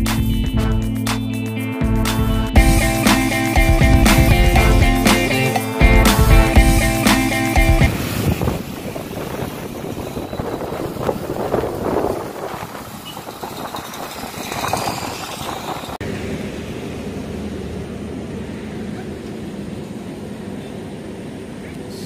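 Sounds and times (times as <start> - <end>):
steady hum: 1.9 - 8.0
traffic noise: 7.6 - 22.0
wind rushing past microphone: 7.8 - 16.0.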